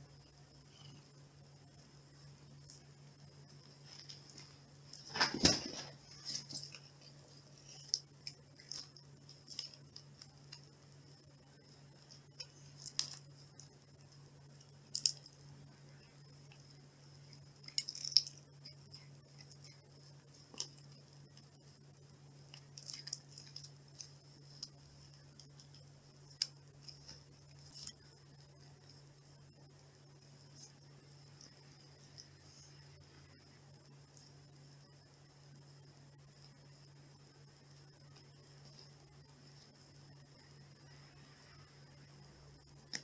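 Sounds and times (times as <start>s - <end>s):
faint low hum: 0.0s - 43.0s
scuffle: 5.0s - 6.6s.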